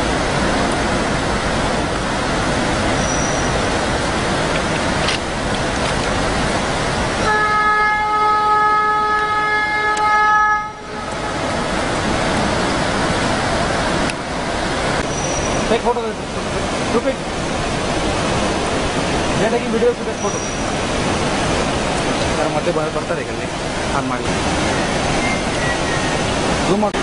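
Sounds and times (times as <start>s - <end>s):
waterfall roaring: 0.0s - 27.0s
train horn blast: 7.2s - 11.5s.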